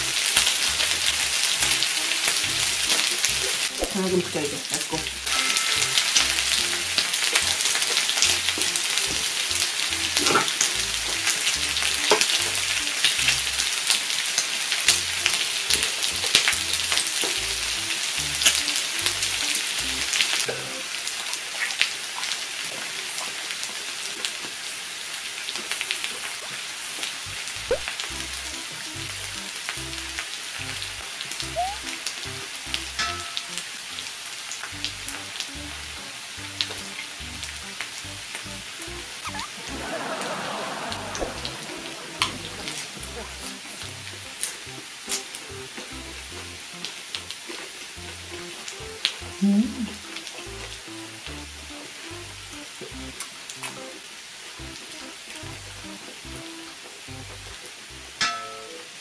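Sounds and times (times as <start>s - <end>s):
meat sizzling on a grill: 0.0s - 41.1s, 41.8s - 58.5s
fat popping: 39.2s - 39.6s.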